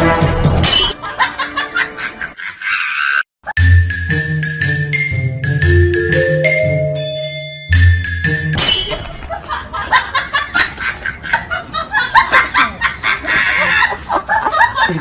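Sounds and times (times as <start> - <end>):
hearty laughter: 1.0 - 3.3, 9.3 - 15.0
mallet percussion notes: 3.6 - 9.3.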